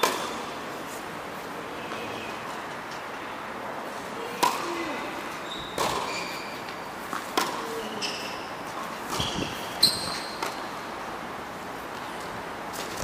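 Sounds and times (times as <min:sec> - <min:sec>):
tennis ball bouncing on hard court: 0:00.0 - 0:00.4, 0:04.3 - 0:05.0, 0:05.7 - 0:07.8, 0:09.0 - 0:10.6
tennis ball struck by racquets: 0:00.0 - 0:00.5, 0:04.3 - 0:04.8, 0:05.8 - 0:06.2, 0:07.1 - 0:07.7
shoe squeaks: 0:05.3 - 0:06.8, 0:07.6 - 0:10.6.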